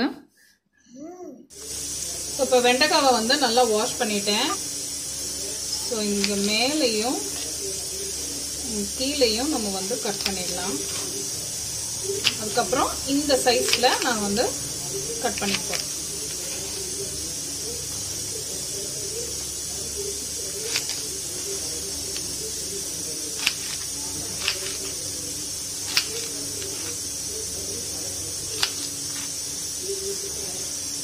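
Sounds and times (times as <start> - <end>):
steady hiss: 1.5 - 31.0.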